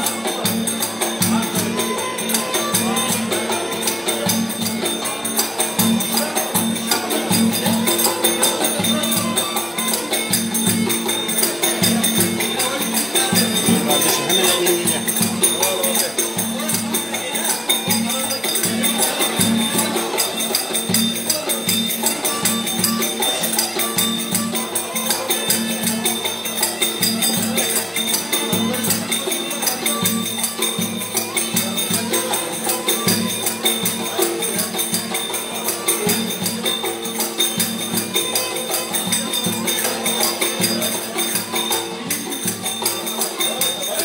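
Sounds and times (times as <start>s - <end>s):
bowed fiddle folk tune: 0.0s - 44.0s.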